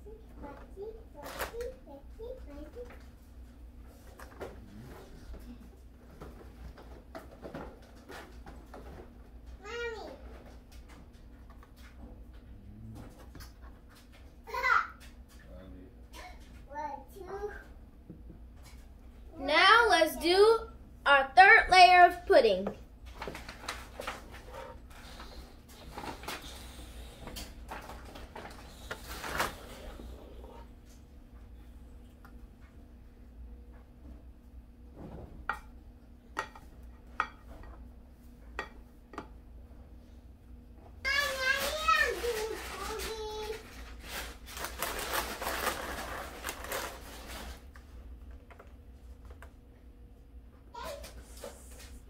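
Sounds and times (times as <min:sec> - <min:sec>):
wafers rustling and crinkling: 0:42.1 - 0:47.7.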